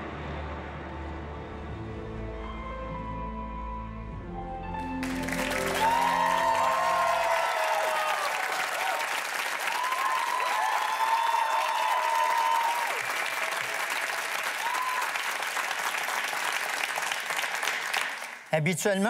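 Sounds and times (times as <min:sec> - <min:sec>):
audience applauding: 0:04.8 - 0:18.6
drawn-out cheers: 0:05.2 - 0:15.7.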